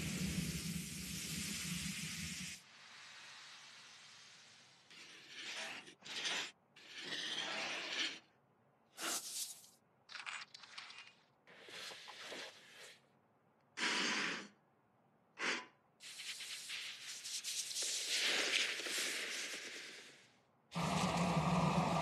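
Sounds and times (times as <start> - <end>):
continuous scraping hiss: 16.0 - 20.2.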